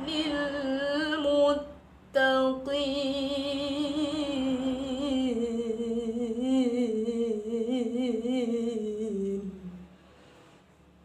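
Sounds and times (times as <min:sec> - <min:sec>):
woman reciting melodically: 0:00.0 - 0:09.8.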